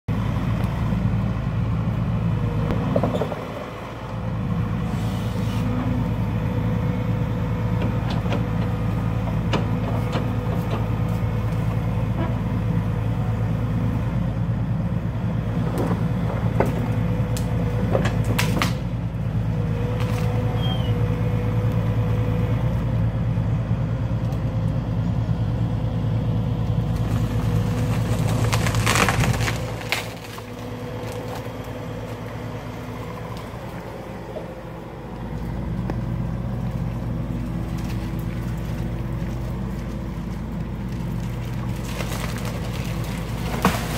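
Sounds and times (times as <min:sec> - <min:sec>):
excavator diesel engine running: 0:00.1 - 0:43.9
wood cracking: 0:15.9 - 0:19.0, 0:26.9 - 0:33.8, 0:36.9 - 0:43.9.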